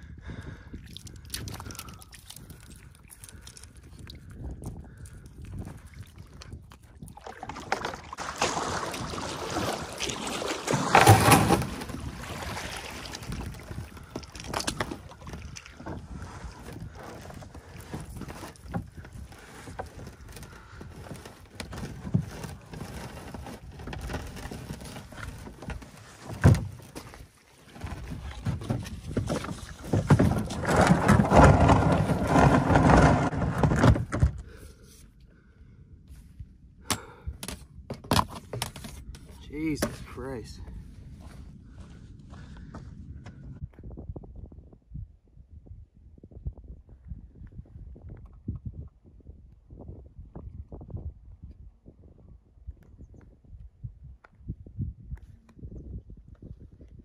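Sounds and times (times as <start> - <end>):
water washing against hull: 0.8 - 34.2
paddle splashes: 7.1 - 20.0.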